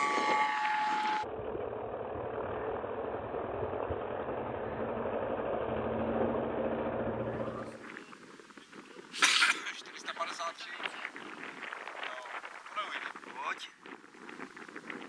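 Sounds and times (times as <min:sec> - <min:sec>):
model plane engine running: 0:00.0 - 0:07.8.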